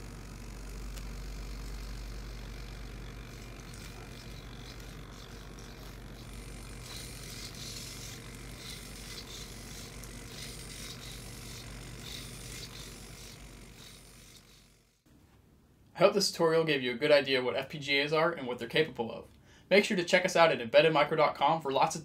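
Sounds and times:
robot servos whirring: 0:00.0 - 0:15.0
steady low hum: 0:00.0 - 0:19.7.

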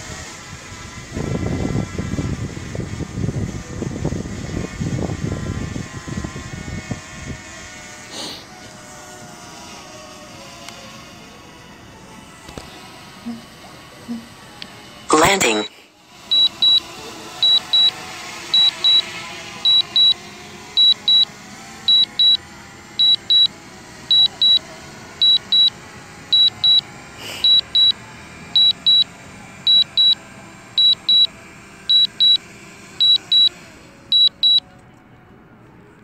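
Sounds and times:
high-pitched double beeps: 0:16.3 - 0:16.8, 0:17.4 - 0:17.9, 0:18.6 - 0:19.0, 0:19.7 - 0:20.2, 0:20.8 - 0:21.3, 0:21.9 - 0:22.4, 0:23.0 - 0:23.5, 0:24.1 - 0:24.6, 0:25.2 - 0:25.7, 0:26.4 - 0:26.8, 0:27.4 - 0:28.0, 0:28.6 - 0:29.1, 0:29.7 - 0:30.2, 0:30.8 - 0:31.3, 0:31.9 - 0:32.4, 0:33.0 - 0:33.5, 0:34.1 - 0:34.6.

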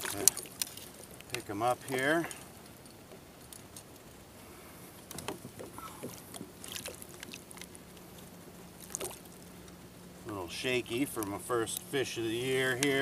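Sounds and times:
small water splashes: 0:00.0 - 0:02.1, 0:05.6 - 0:08.2, 0:08.8 - 0:09.5.

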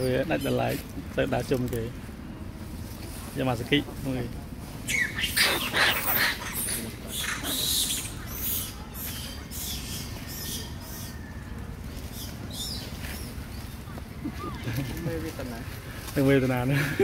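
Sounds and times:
monkeys making squeaky calls: 0:04.8 - 0:11.4, 0:12.1 - 0:15.7.

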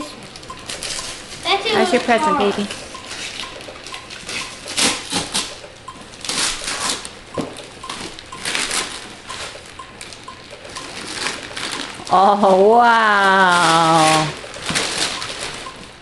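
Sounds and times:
wrapping paper tearing and crinkling: 0:10.9 - 0:15.6.

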